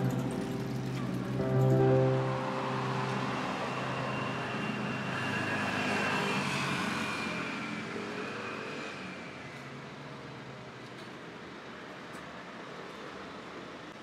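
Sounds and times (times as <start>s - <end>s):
vehicle passing by: 0.0s - 9.4s.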